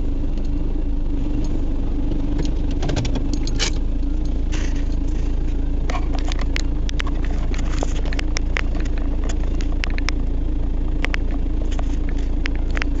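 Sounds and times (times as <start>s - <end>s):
vehicle engine drone: 0.0s - 13.0s
clicks and rattles: 2.4s - 3.8s.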